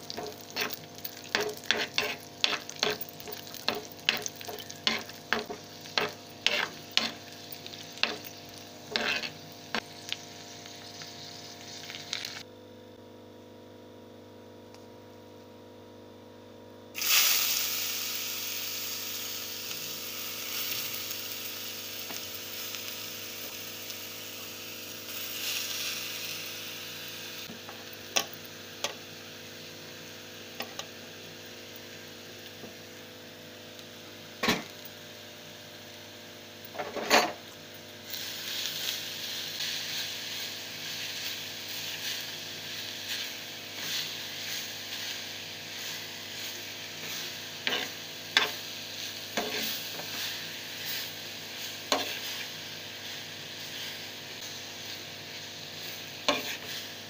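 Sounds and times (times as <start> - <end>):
food sizzling in hot pan: 0.0 - 12.5, 17.0 - 57.0
ladle scraping pan: 0.2 - 7.3, 8.0 - 9.8.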